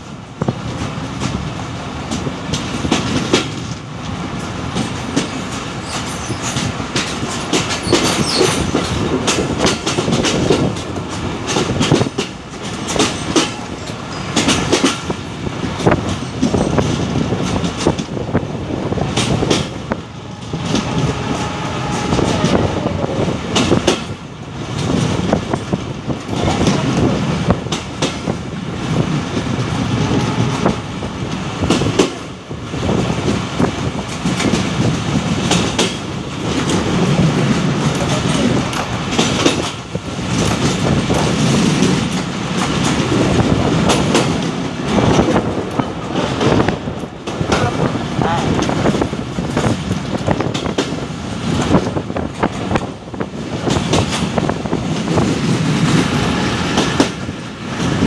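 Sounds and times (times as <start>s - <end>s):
train wheels rumbling on rail: 0.0s - 58.0s
wheels clacking over rail joints: 0.0s - 58.0s.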